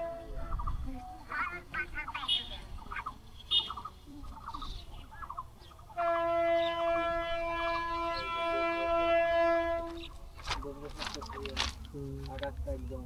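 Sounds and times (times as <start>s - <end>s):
train horn long blast: 0.0s - 0.5s, 6.0s - 10.1s.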